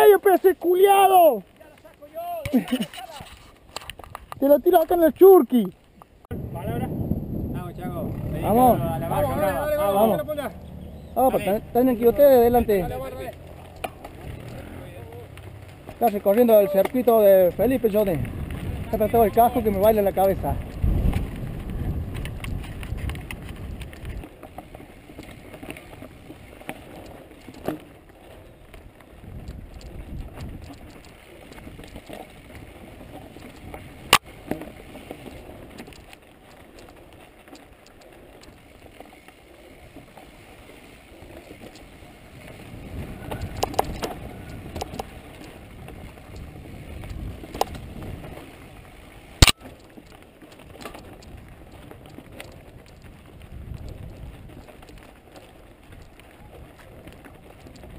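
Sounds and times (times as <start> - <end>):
bike tyres rolling over dirt: 0.0 - 57.9
bike clicking and rattling: 0.1 - 5.0, 7.6 - 57.9
low rumble: 6.3 - 16.0.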